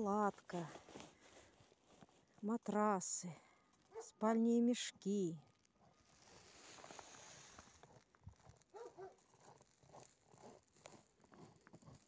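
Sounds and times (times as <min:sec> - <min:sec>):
faint dog barking: 0:03.8 - 0:04.2, 0:08.7 - 0:09.6.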